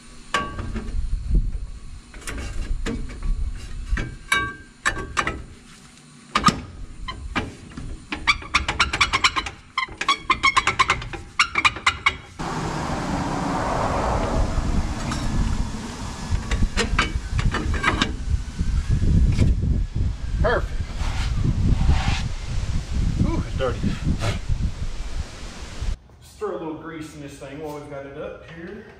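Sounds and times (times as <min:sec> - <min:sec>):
steady rushing noise: 0:12.4 - 0:26.0.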